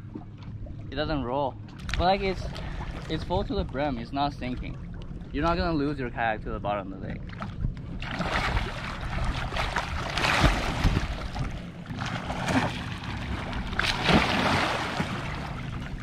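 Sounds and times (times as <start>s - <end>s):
water splashing: 7.2s - 16.0s.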